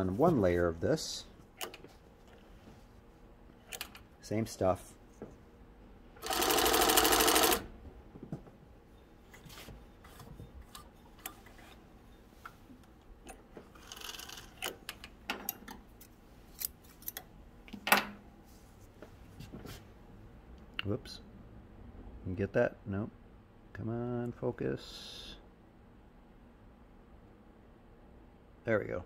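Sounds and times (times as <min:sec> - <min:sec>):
industrial sewing machine stitching: 0:06.2 - 0:07.7.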